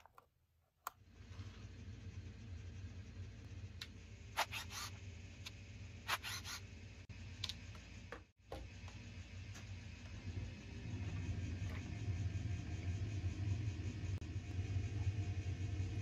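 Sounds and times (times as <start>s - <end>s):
steady low hum: 0.8s - 16.0s.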